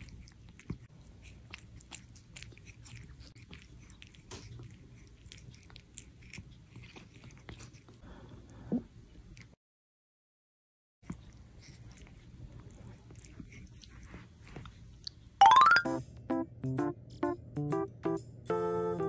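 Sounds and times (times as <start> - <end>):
cat crunching food: 0.0 - 8.0, 11.0 - 15.2.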